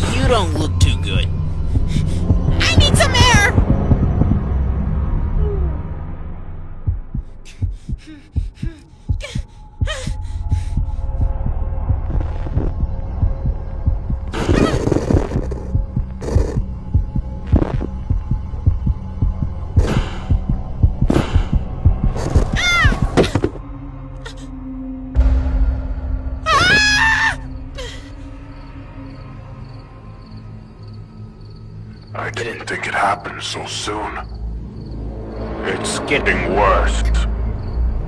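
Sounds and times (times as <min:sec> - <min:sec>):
rapid pounding heartbeat: 0:00.0 - 0:04.7, 0:06.8 - 0:23.6
low droning hum: 0:00.0 - 0:26.6.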